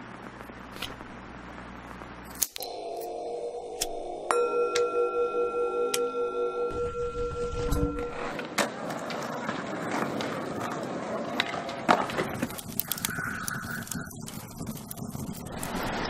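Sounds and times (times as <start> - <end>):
short steady tone: 2.6 - 8.4
singing bowl ringing: 2.6 - 8.5
rustling scraping noise: 6.8 - 10.7, 11.4 - 16.0.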